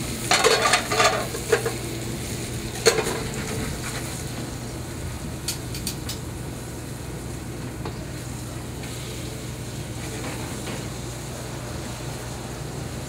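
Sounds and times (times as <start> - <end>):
metal pan clatter: 0.3 - 1.8.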